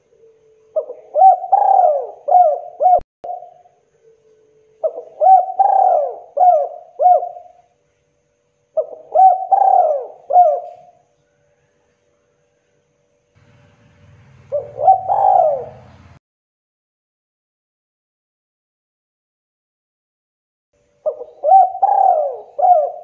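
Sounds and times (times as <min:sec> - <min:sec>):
dove cooing: 0:00.0 - 0:04.2, 0:04.8 - 0:07.6, 0:08.8 - 0:11.0, 0:14.4 - 0:16.1, 0:21.0 - 0:23.0.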